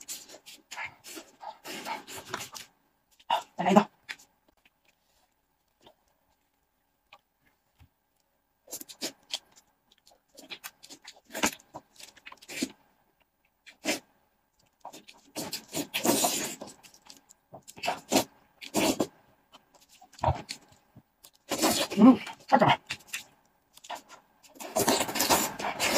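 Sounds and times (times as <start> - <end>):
mouth sucking and chewing: 13.6 - 25.9.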